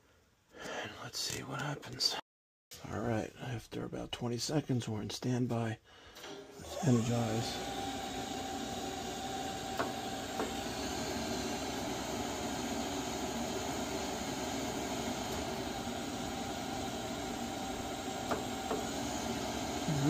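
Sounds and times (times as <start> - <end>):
water heater whirring and hissing: 6.2 - 20.0.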